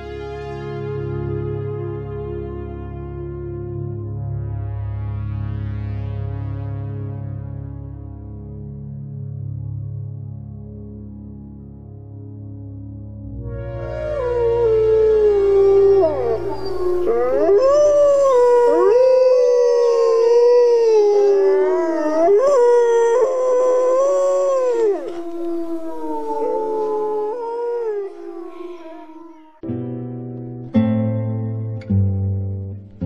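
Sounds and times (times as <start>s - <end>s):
low music drone: 0.0s - 29.8s
wolves howling: 13.6s - 29.6s.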